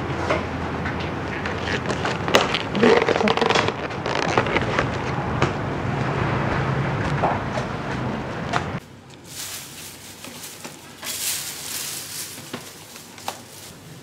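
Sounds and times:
plastic food boxes crinkling and clicking: 1.3s - 5.1s, 9.1s - 13.7s.

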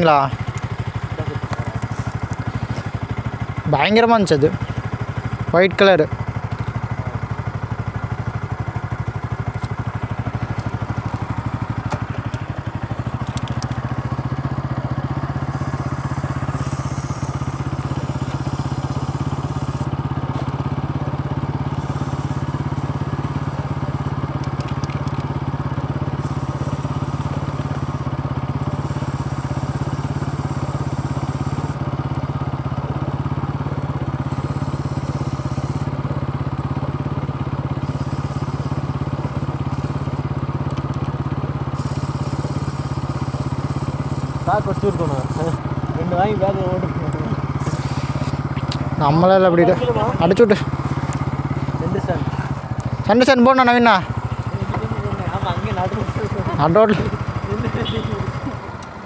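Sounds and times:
motorcycle engine idling: 0.0s - 59.0s
high-pitched hiss: 15.5s - 19.9s, 41.8s - 45.6s.

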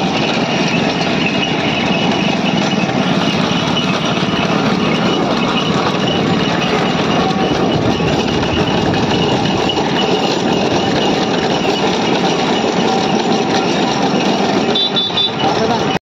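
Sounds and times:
cart wheels rumbling on pavement: 0.0s - 16.0s.

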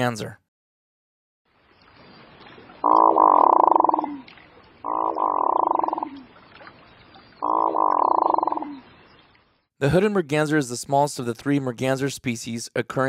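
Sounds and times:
duck rolling calls: 2.8s - 4.2s, 4.8s - 6.2s.

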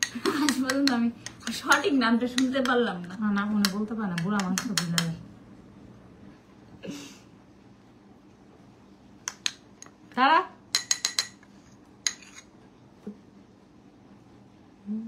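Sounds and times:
metal spoon clinking on bowl: 10.7s - 11.4s.

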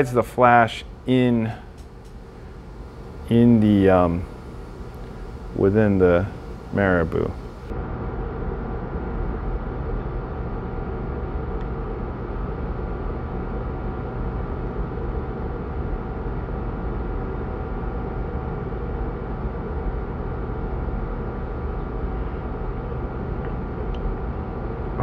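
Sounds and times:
faint steady tones: 0.0s - 7.7s
mechanical hum and hiss: 0.0s - 25.0s.

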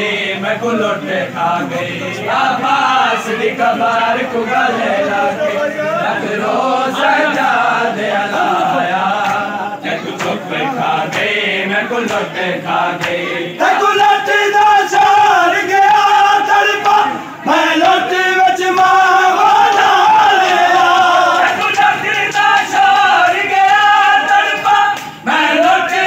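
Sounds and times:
men chanting together: 0.0s - 26.0s.

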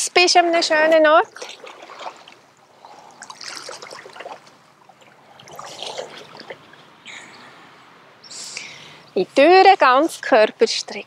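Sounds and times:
lake water lapping at shore: 0.7s - 8.0s.

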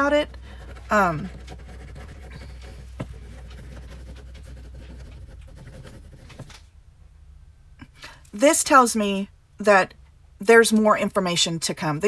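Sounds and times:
pen scribbling on paper: 0.0s - 6.5s.

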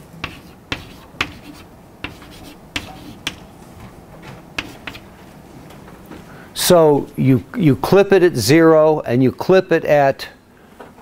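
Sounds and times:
chalk scratching: 0.2s - 3.5s, 4.6s - 5.2s
chalk tapping on blackboard: 0.2s - 3.5s, 4.6s - 5.1s.

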